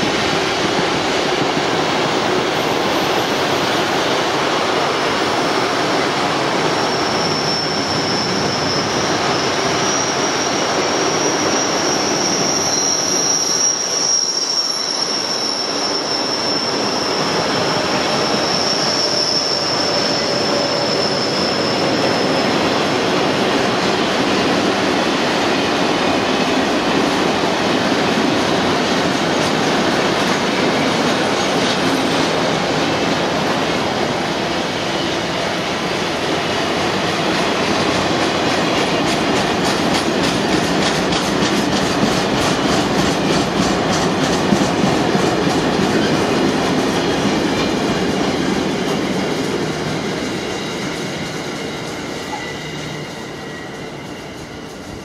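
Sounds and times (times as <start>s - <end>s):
train wheels rumbling on rail: 0.0s - 55.0s
high wheel squeal: 5.3s - 23.0s, 49.0s - 55.0s.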